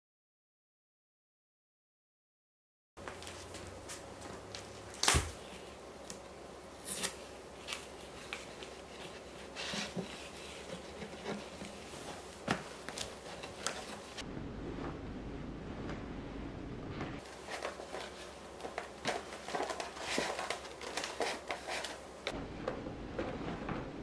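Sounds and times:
cloth wiping a cabinet: 7.2s - 14.2s.

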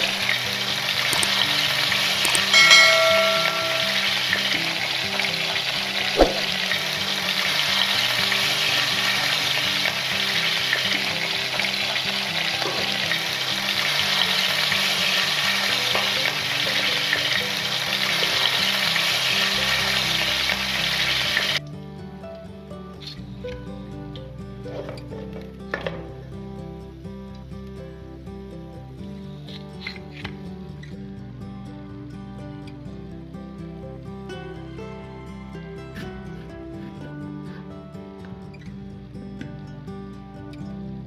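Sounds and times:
fish sizzling in hot oil: 0.0s - 21.6s.

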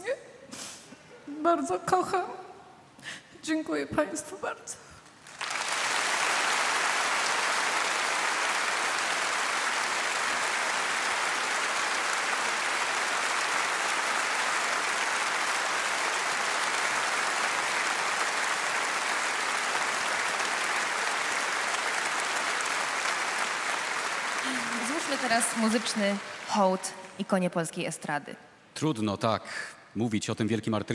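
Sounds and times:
large audience applauding: 5.2s - 27.2s.

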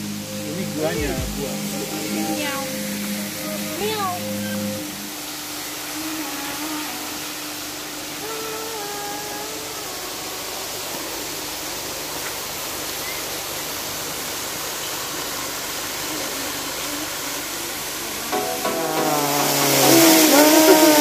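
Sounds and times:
water splashing into pool: 18.2s - 21.0s.

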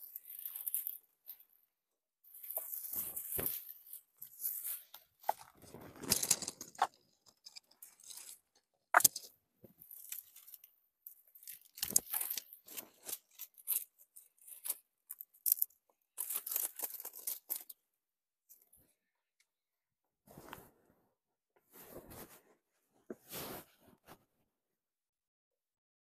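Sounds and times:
dry grass and branches rustling: 2.3s - 8.4s.

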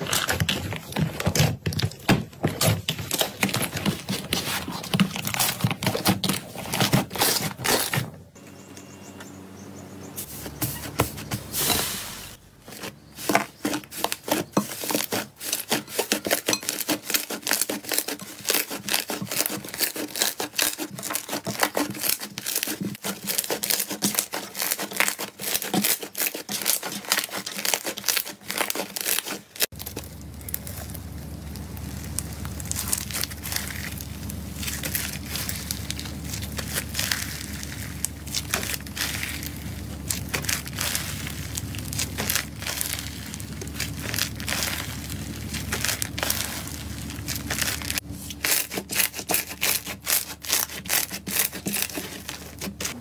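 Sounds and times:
slime crackling and popping: 14.8s - 53.0s
low steady hum: 29.7s - 53.0s.

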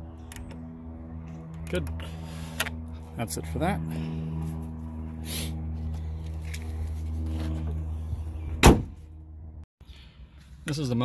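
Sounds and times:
low hum with even tones: 0.0s - 11.0s
car door slamming: 8.6s - 9.0s.

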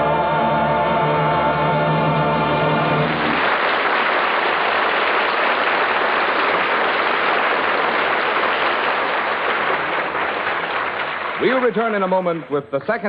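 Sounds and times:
audience applauding: 2.9s - 12.6s.

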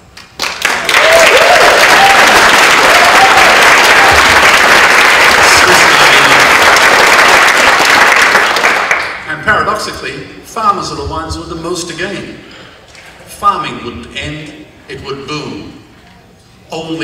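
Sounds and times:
audience applauding: 0.2s - 9.2s.

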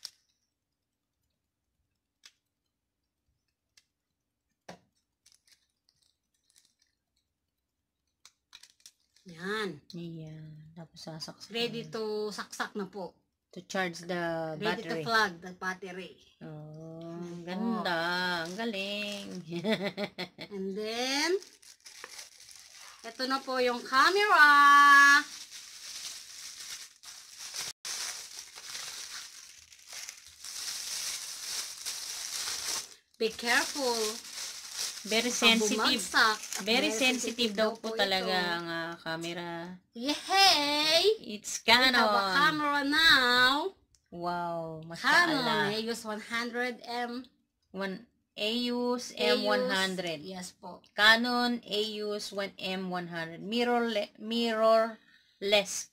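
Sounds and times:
plastic bag crinkling: 4.9s - 7.3s, 18.3s - 19.6s, 21.2s - 38.4s.

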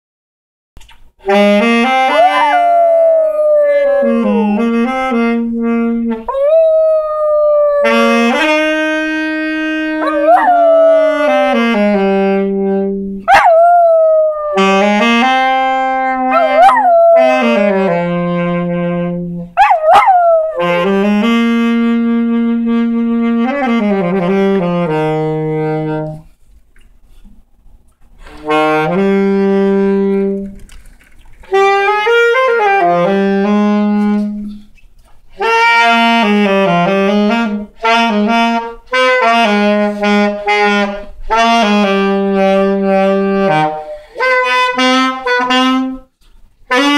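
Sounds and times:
saxophone long notes: 1.2s - 26.3s, 28.2s - 30.5s, 31.5s - 34.7s, 35.4s - 46.1s, 46.7s - 46.9s
dog howling: 2.1s - 5.0s, 6.3s - 8.3s, 10.0s - 11.6s, 13.3s - 14.8s, 16.2s - 17.8s, 19.6s - 20.8s.

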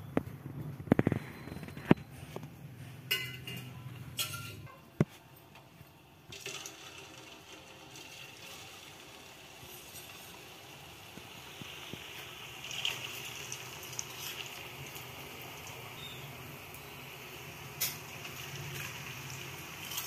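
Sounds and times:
spoon clinking on metal pot: 3.1s - 4.8s
dough sizzling in hot oil: 6.3s - 20.0s.

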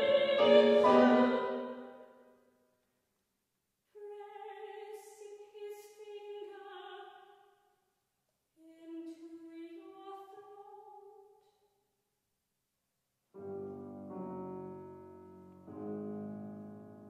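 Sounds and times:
soprano singing: 0.0s - 1.9s, 3.9s - 7.1s, 8.6s - 11.2s.

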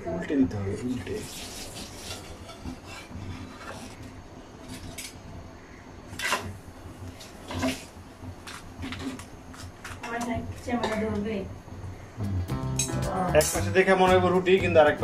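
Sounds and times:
metal spatula scraping on griddle: 1.0s - 5.3s, 6.1s - 6.6s, 7.2s - 10.0s.

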